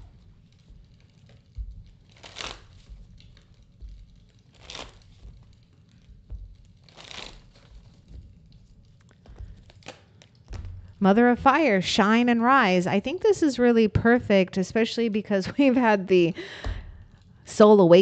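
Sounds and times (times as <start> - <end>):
cards being shuffled: 0.2 - 11.0.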